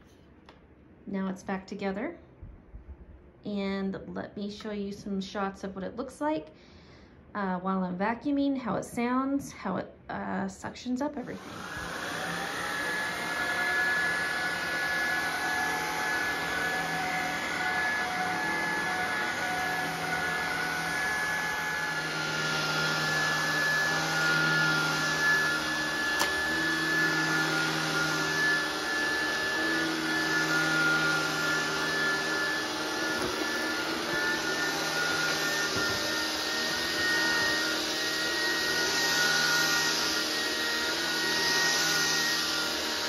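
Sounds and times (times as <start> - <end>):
stick vacuum whining: 11.3 - 43.0
vacuum hiss on carpet: 11.4 - 43.0.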